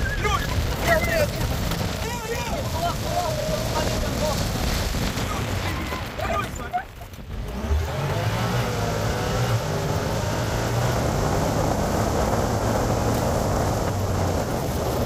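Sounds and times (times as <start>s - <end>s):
buggy engine running hard: 7.1s - 15.0s.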